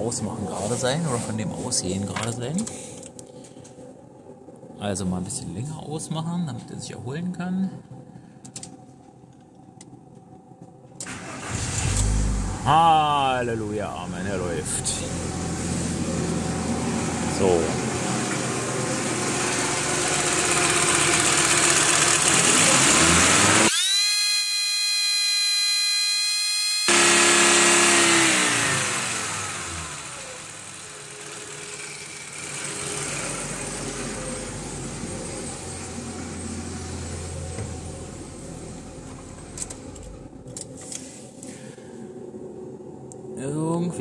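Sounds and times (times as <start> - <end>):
petrol engine revving and idling: 11.2 - 12.9, 14.2 - 24.1, 26.7 - 40.2.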